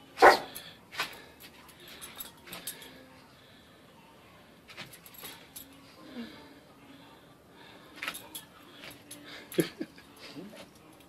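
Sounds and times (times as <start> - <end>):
dog tags jingling: 0.2 - 3.0, 8.0 - 9.7.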